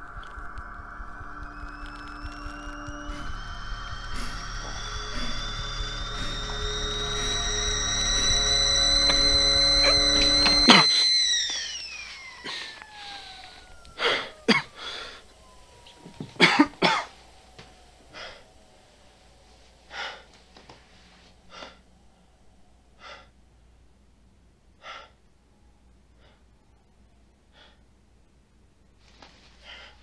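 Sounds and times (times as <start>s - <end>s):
music: 0.0s - 11.2s
faint tone sliding down: 0.0s - 24.0s
man coughing: 14.5s - 14.7s, 16.4s - 17.1s.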